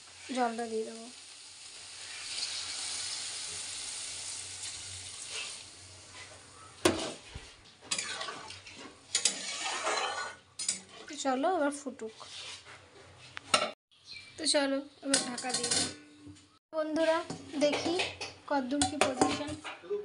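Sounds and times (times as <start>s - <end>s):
water pouring into hot pan hissing: 0.0s - 6.0s
utensil knocking and scraping pan: 6.8s - 11.1s, 17.0s - 19.8s.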